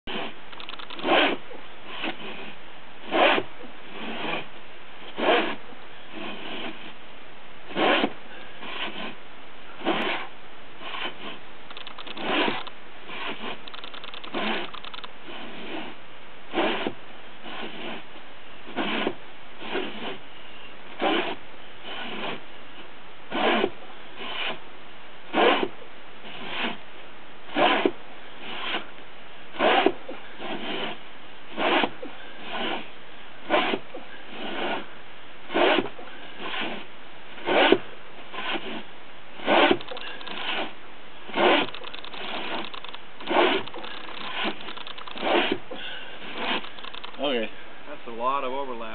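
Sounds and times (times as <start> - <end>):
crosscut saw rasping through log: 0.1 - 4.5, 5.1 - 7.0, 7.7 - 9.2, 9.8 - 18.1, 18.7 - 22.5, 23.3 - 24.6, 25.3 - 26.8, 27.5 - 28.9, 29.5 - 34.9, 35.5 - 47.5.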